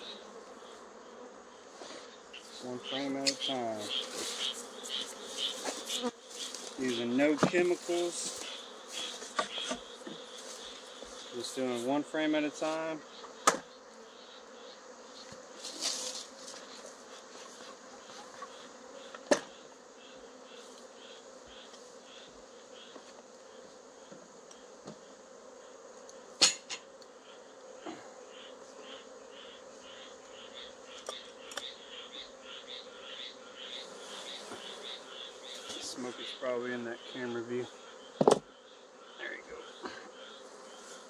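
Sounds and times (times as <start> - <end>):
bees buzzing: 0.0 - 41.0
sharp knocks: 38.2 - 38.5.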